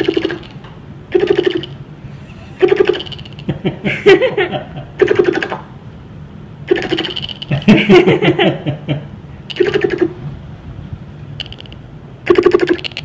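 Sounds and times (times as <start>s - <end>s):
buzzy rattling bursts: 2.6s - 3.6s, 6.7s - 8.0s, 9.4s - 10.2s
girl giggling and laughing: 3.5s - 5.0s, 7.5s - 9.1s.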